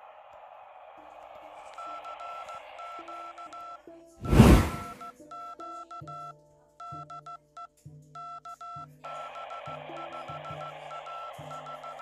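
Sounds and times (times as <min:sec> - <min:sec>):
short beeps: 0:03.0 - 0:05.1
electronic music with beeping tones: 0:08.2 - 0:12.0.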